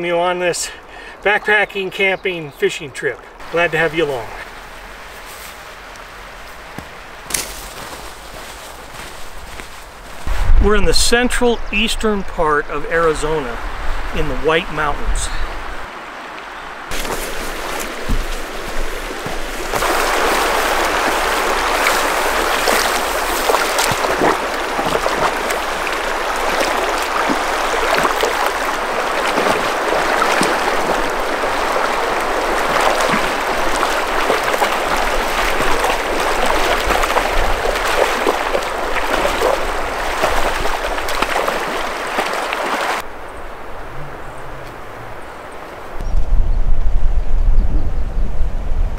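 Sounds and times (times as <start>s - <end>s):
splashing through water: 16.9s - 43.1s
river rushing over rocks: 16.9s - 43.8s.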